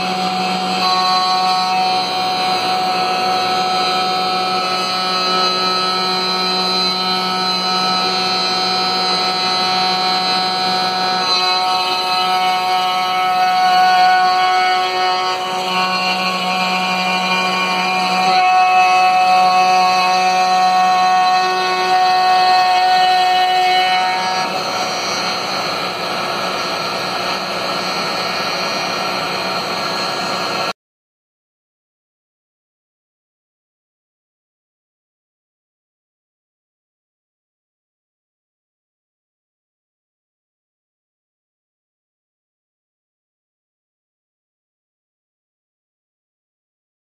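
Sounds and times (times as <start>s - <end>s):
router bit cutting wood: 0.0s - 30.7s
router motor whining: 0.0s - 30.7s.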